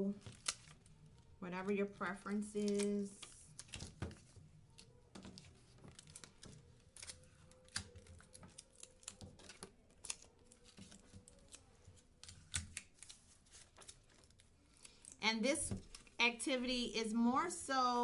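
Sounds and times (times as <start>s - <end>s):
paper rustling: 2.4s - 15.1s.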